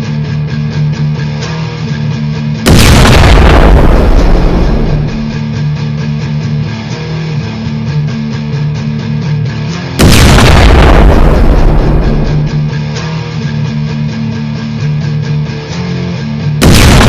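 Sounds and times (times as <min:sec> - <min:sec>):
guitar music with beat: 0:00.0 - 0:02.6, 0:03.8 - 0:10.0, 0:11.2 - 0:16.6
sudden loud hit: 0:02.7 - 0:05.4, 0:10.0 - 0:12.8, 0:16.6 - 0:17.0.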